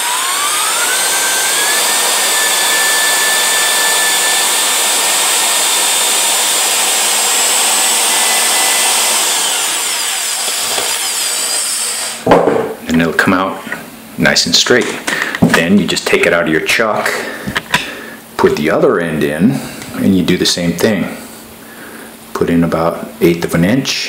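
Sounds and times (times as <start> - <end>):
electric drill motor whining: 0.0 - 12.3.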